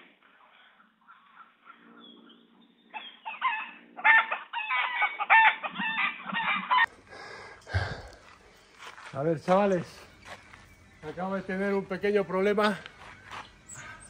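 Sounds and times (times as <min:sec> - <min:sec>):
chickens clucking: 0:03.0 - 0:06.9.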